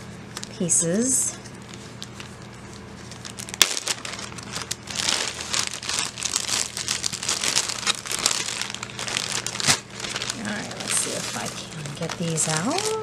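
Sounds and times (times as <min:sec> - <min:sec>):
plastic bag crinkling: 0:01.5 - 0:13.0.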